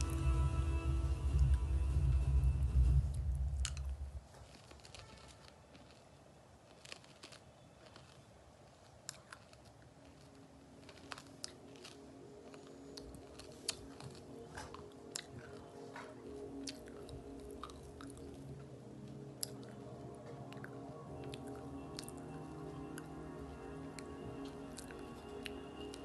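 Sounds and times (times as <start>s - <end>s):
dog crunching food from steel bowl: 3.6s - 23.2s.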